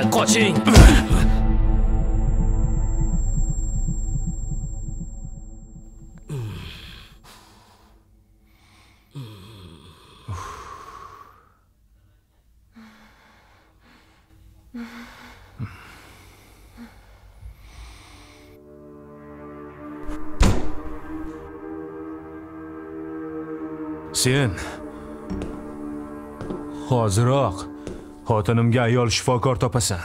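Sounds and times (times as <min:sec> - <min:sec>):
person gasping and sighing: 0:06.3 - 0:07.4
person breathing heavily: 0:06.3 - 0:11.7, 0:12.7 - 0:18.6.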